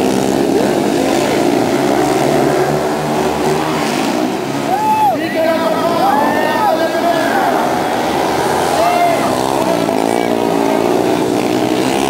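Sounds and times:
motorcycles racing: 0:00.0 - 0:12.0.

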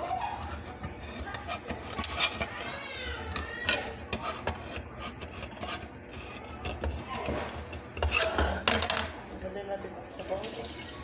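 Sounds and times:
knife scraping metal can lid: 0:00.0 - 0:02.6, 0:03.3 - 0:08.6.

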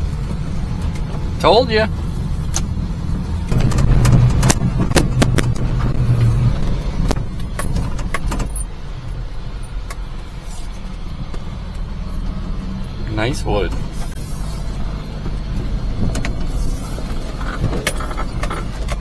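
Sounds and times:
cab clicks and rattles: 0:02.4 - 0:08.7, 0:15.2 - 0:19.0.

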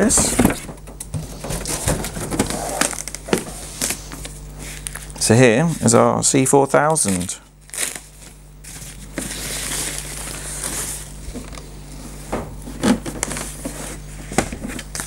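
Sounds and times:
plastic wrapping rustling: 0:00.0 - 0:05.2, 0:07.0 - 0:11.6.

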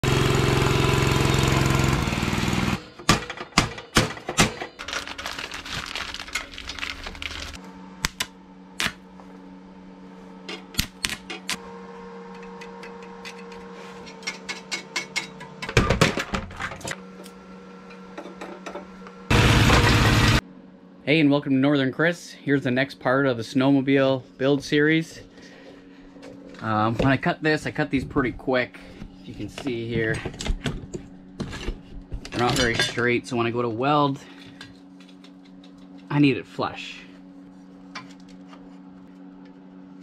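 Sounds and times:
small engine running: 0:00.0 - 0:03.0, 0:19.3 - 0:20.4
steady low hum: 0:02.8 - 0:40.0
arc welding crackling and popping: 0:04.8 - 0:09.1.

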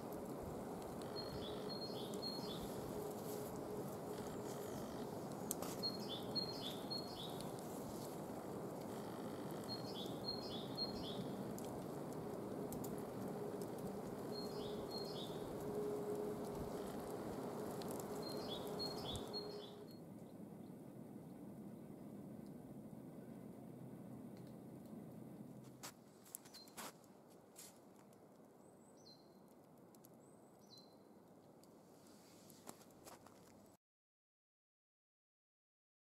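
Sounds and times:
songbird singing: 0:00.6 - 0:08.2, 0:08.9 - 0:11.7, 0:13.0 - 0:20.8, 0:28.6 - 0:29.5, 0:30.2 - 0:31.1.

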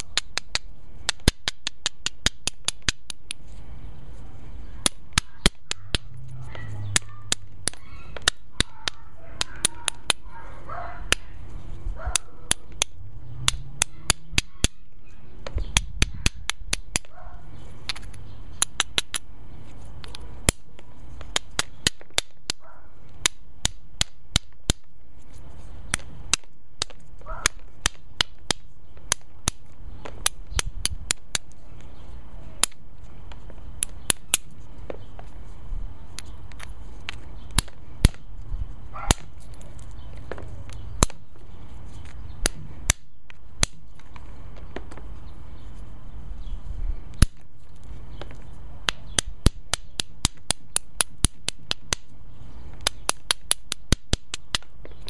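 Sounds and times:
hammerstone striking flint: 0:00.0 - 0:03.4, 0:12.1 - 0:14.8, 0:15.4 - 0:17.1, 0:17.9 - 0:19.3, 0:20.0 - 0:22.6, 0:33.8 - 0:35.3, 0:36.2 - 0:38.3.

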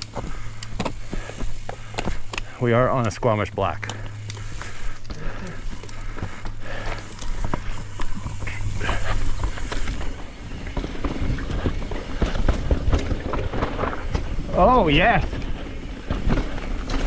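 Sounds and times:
bike tyres rumbling over rocks: 0:00.0 - 0:17.0
steady low hum: 0:00.0 - 0:17.0
bike frame knocks and rattles: 0:07.4 - 0:14.5.

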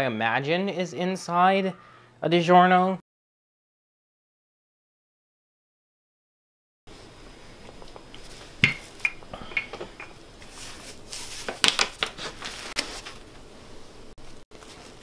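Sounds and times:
dough rustling: 0:10.4 - 0:15.0.

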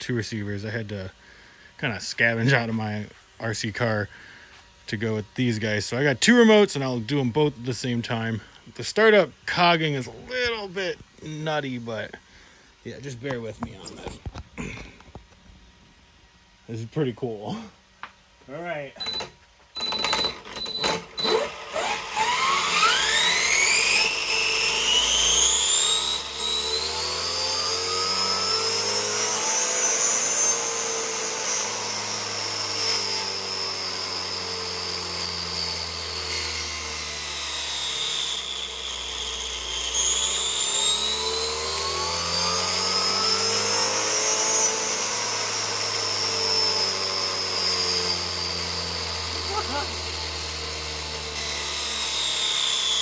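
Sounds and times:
high electric motor whine: 0:00.0 - 0:53.0.

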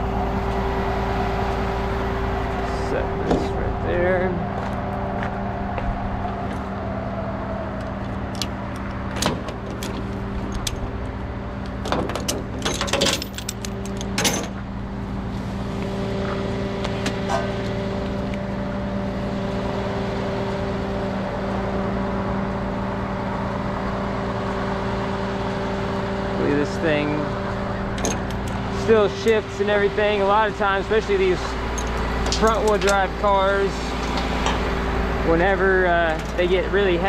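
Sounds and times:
truck engine running: 0:00.0 - 0:37.0
chains clanking on steel deck: 0:11.9 - 0:14.6, 0:31.4 - 0:34.7.

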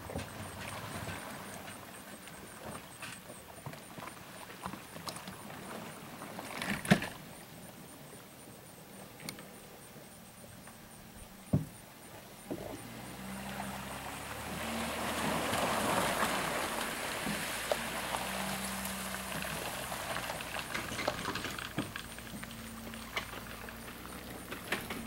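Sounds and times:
engine humming: 0:00.0 - 0:06.9, 0:09.0 - 0:25.0.

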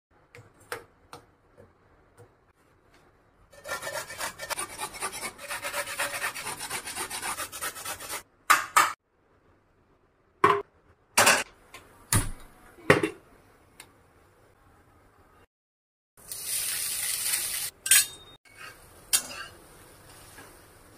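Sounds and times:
coconut grating on metal grater: 0:03.5 - 0:08.2.

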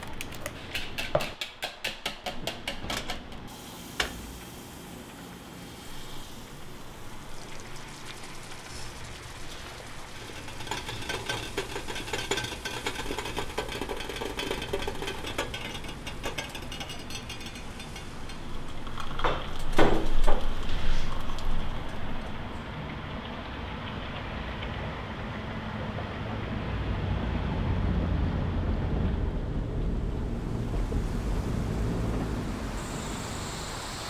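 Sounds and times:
food sizzling in frying pan: 0:03.5 - 0:19.2.

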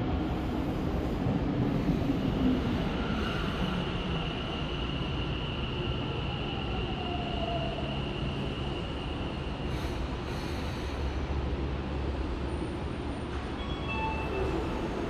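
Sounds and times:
train high whine: 0:00.0 - 0:15.0.

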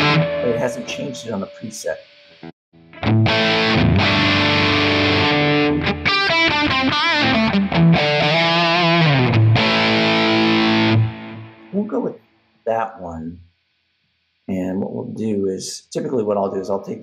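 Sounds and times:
distorted electric guitar: 0:00.0 - 0:12.1.

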